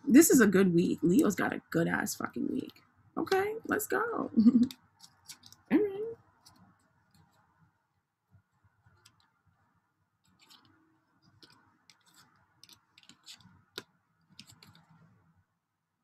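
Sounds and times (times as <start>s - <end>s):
cards clicking: 4.7s - 5.6s, 10.3s - 15.0s
cards sliding against cards: 5.0s - 5.6s, 10.3s - 15.1s.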